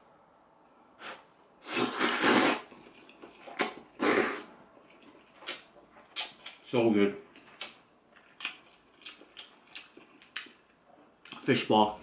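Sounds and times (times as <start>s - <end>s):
noodles slurped: 1.6s - 6.4s.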